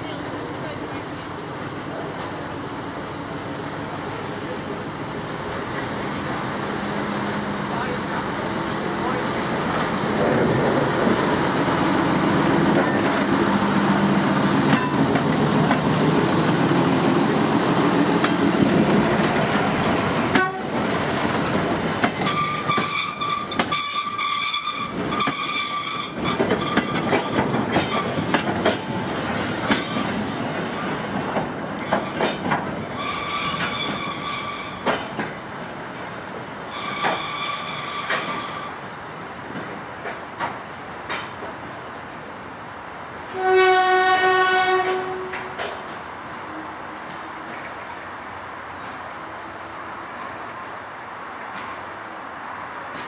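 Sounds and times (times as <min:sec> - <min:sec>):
diesel locomotive engine: 0:00.0 - 0:53.0
wheel flange squeals: 0:22.2 - 0:27.4, 0:32.9 - 0:35.0, 0:36.7 - 0:38.8.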